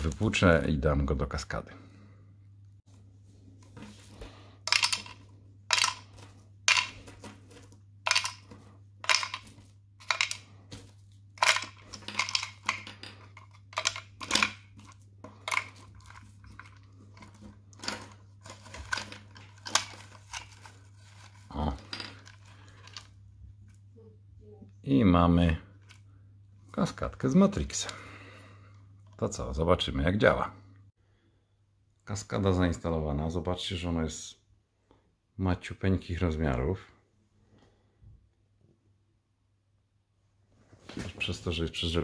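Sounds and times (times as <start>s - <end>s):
plastic parts knocking together: 3.8s - 20.7s
filter stones clicking into plastic: 4.7s - 7.0s, 8.0s - 10.5s, 11.4s - 20.4s.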